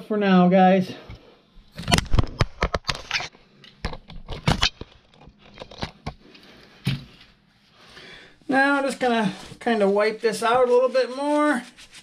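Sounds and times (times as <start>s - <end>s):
paper rustling and tearing: 8.8s - 12.0s.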